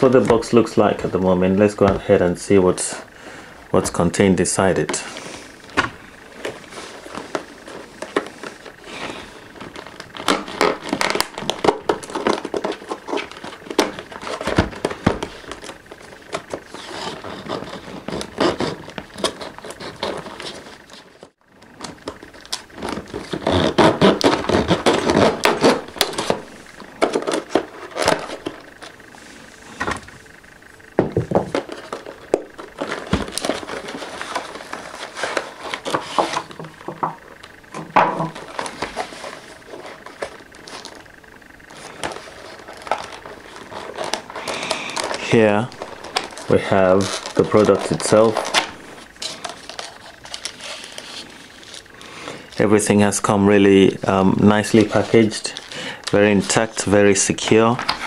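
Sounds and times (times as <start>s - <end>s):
plastic packaging crackling: 31.4s - 37.6s, 38.2s - 53.2s.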